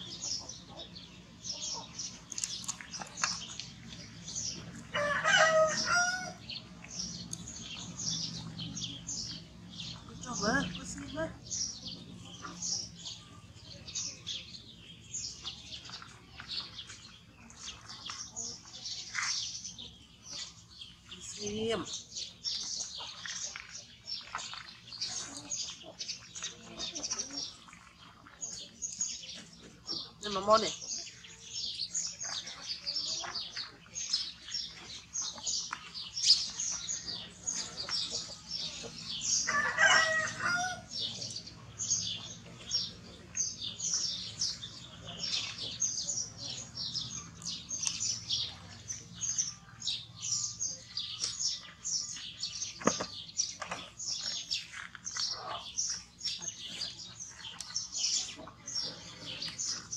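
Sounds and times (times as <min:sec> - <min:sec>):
small birds chirping: 0:00.0 - 0:59.9
rooster crowing: 0:04.9 - 0:06.4, 0:39.5 - 0:40.9.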